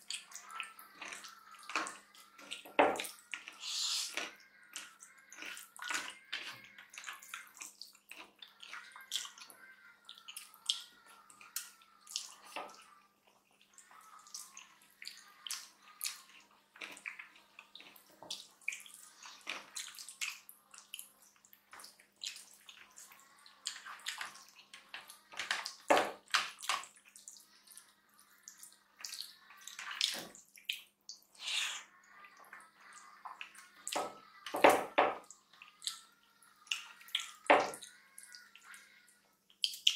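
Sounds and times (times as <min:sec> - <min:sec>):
chewing and lip smacks: 0:00.0 - 0:25.8
fingers squelching food: 0:00.0 - 0:25.8.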